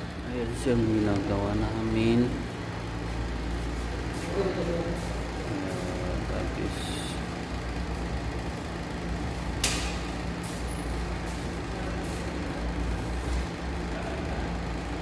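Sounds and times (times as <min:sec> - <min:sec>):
steady low hum: 0:00.0 - 0:15.0
sharp click: 0:09.6 - 0:10.0.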